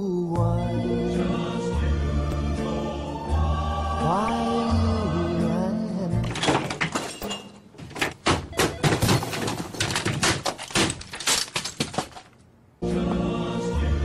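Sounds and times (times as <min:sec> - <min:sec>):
objects crashing to the floor: 0:06.2 - 0:12.4.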